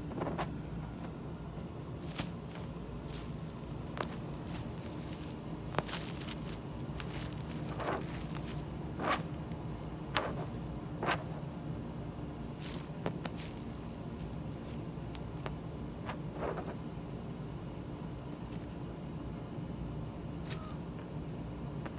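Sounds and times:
low hum: 0:00.0 - 0:21.9
paper and plastic bag crinkling: 0:02.0 - 0:09.3.

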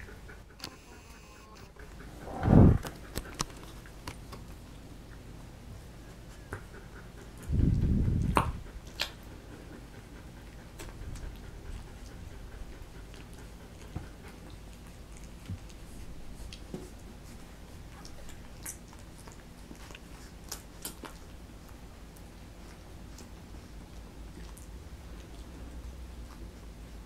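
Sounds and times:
low muffled huff: 0:02.0 - 0:03.0
puppies suckling smacking clicks: 0:06.1 - 0:27.0.

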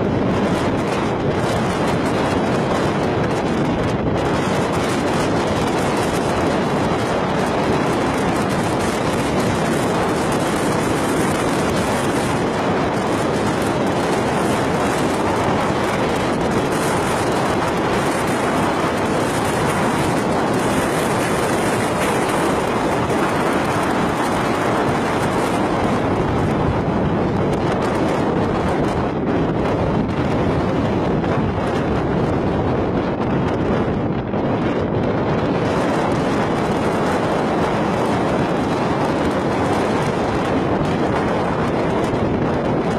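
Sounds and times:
water rushing: 0:00.0 - 0:30.7
wind rushing: 0:00.0 - 0:42.9.

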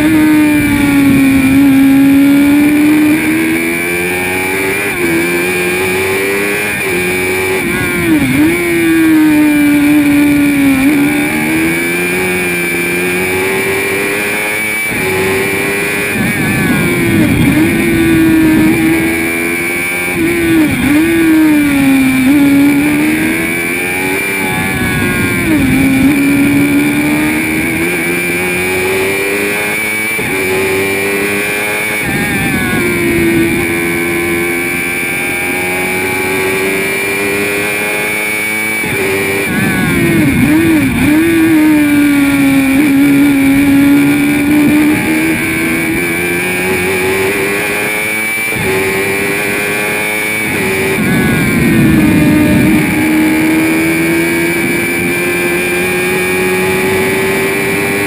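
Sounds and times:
high whine: 0:00.0 - 0:58.0
race car engine revving: 0:00.0 - 0:58.0.

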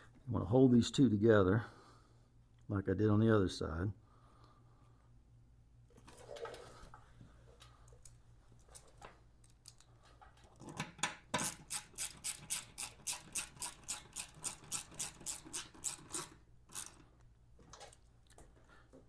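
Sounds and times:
hand ratchet clicking: 0:11.4 - 0:17.0.

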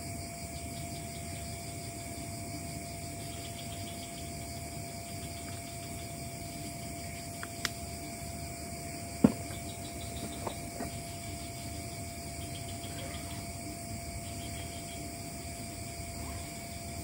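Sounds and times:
faint steady hum: 0:00.0 - 0:17.0
outdoor night hiss: 0:00.0 - 0:17.0.

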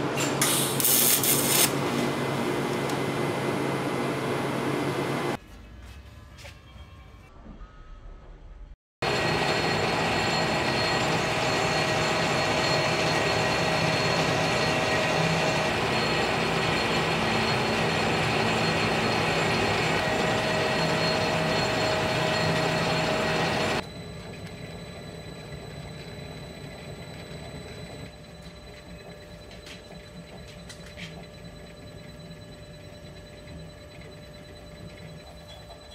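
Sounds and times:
metal lathe machining: 0:09.0 - 0:35.9.

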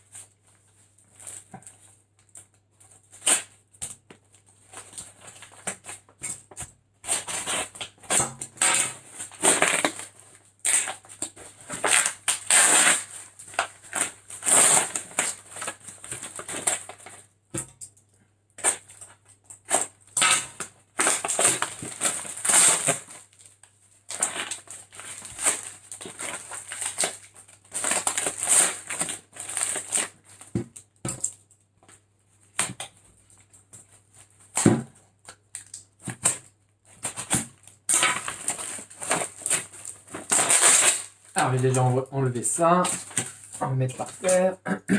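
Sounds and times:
paper ripping and crackling: 0:07.0 - 0:17.3, 0:19.6 - 0:30.6, 0:37.0 - 0:44.5.

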